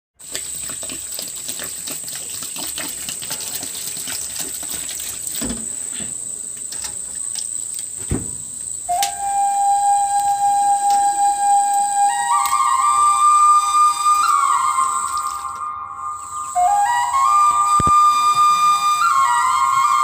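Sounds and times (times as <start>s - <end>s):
hiss with clicks and crackles: 0.2s - 9.3s
high-pitched insect drone: 5.9s - 20.0s
soft thumps: 8.0s - 8.7s
flute melody: 8.8s - 20.0s.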